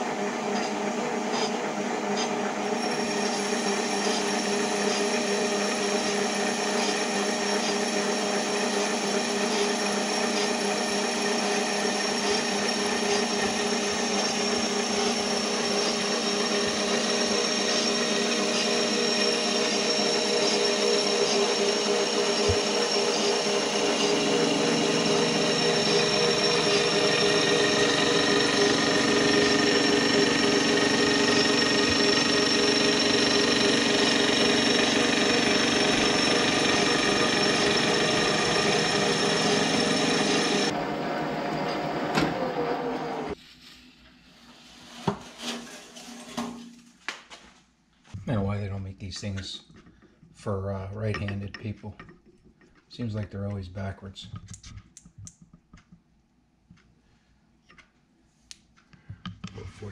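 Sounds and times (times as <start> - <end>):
lathe motor and gear whine: 0.0 - 43.4.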